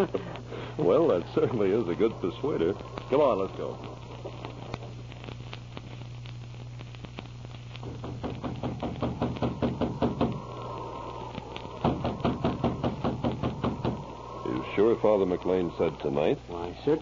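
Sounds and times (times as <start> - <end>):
low recording hum: 0.0 - 17.0
knocks on wooden door: 7.9 - 10.3.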